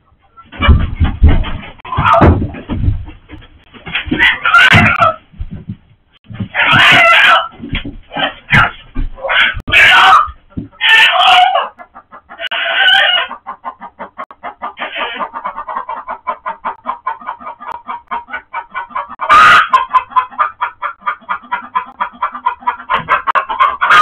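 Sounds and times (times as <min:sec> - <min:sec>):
chickens squawking: 0:00.0 - 0:05.4, 0:06.2 - 0:24.0
chickens clucking rapidly: 0:00.0 - 0:24.0.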